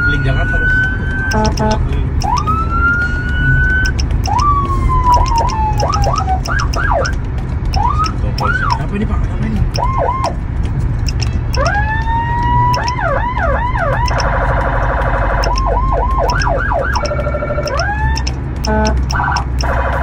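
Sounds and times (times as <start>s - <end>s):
electronic siren changing tones: 0.0s - 7.2s, 7.8s - 8.8s, 9.7s - 10.4s, 11.0s - 20.0s.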